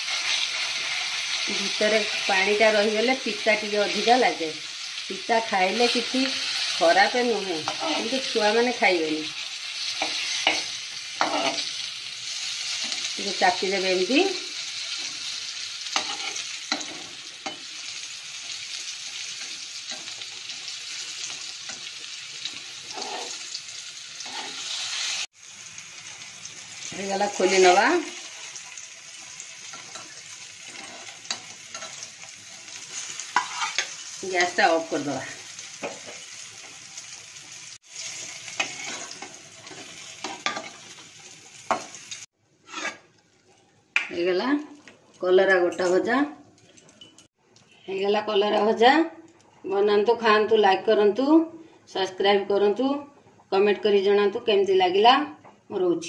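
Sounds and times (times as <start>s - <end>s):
vegetables sizzling in hot oil: 0.0s - 45.2s
metal spatula scraping pan: 14.8s - 18.6s, 19.2s - 23.6s, 24.2s - 25.3s, 27.3s - 34.6s, 38.0s - 41.0s, 42.6s - 43.1s.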